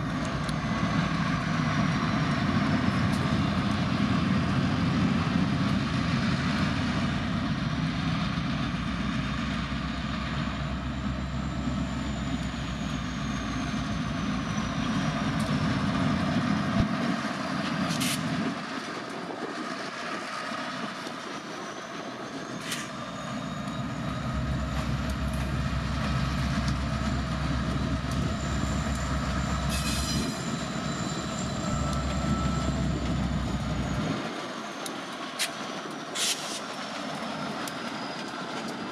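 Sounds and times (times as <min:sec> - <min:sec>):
locomotives low rumble: 0:00.0 - 0:36.1
wheels squealing: 0:20.2 - 0:38.9.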